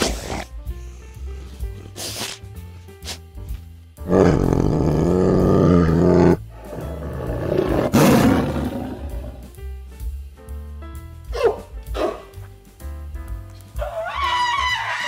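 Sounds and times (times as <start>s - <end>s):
background music: 0.0s - 15.0s
large animal calling loudly: 13.8s - 15.0s.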